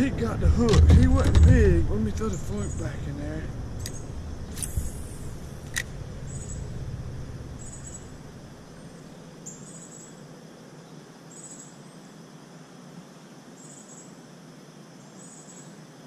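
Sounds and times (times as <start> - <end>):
low rumble: 0.0 - 9.2
insects buzzing: 0.0 - 16.0
sharp click: 3.8 - 6.6.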